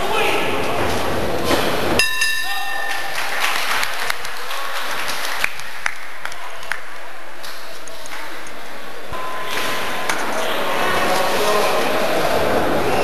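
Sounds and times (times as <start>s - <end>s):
crowd noise and applause: 0.6s - 13.0s
boxing bell ringing: 2.0s - 3.1s
sharp claps: 2.6s - 6.9s.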